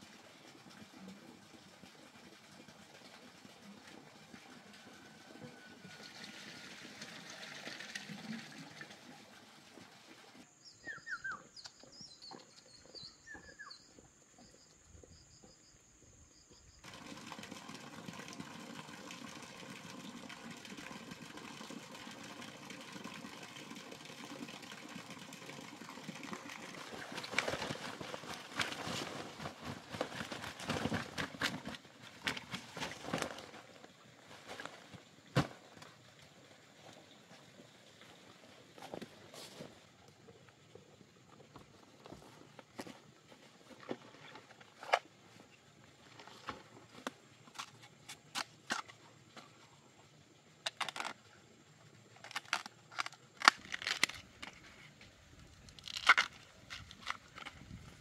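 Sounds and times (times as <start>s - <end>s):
bird chirps: 10.6s - 15.8s
footsteps through grass and leaves: 26.9s - 35.7s.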